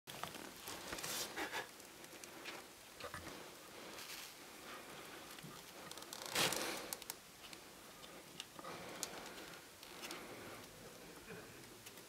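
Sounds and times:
rustles and scuffs: 3.3s - 4.4s.

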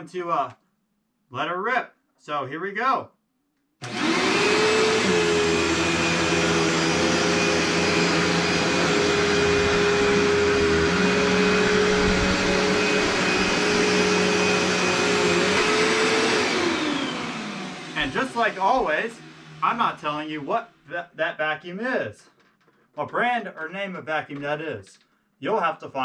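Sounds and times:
vacuum cleaner motor whine: 3.8s - 20.7s.

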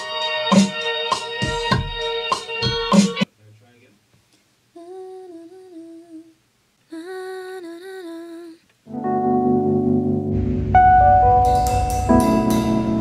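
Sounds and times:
music with keyboard chords: 0.0s - 3.3s, 8.9s - 13.0s
woman humming: 4.8s - 8.6s.

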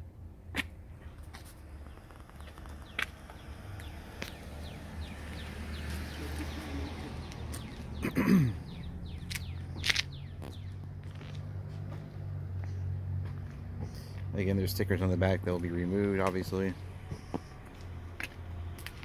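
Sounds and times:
footsteps clicking: 0.6s - 6.0s, 9.2s - 14.3s, 17.0s - 19.0s.

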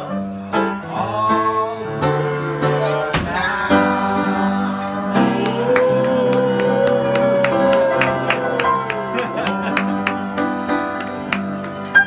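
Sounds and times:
upright piano playing: 0.0s - 12.0s
voices singing along: 0.9s - 11.7s.

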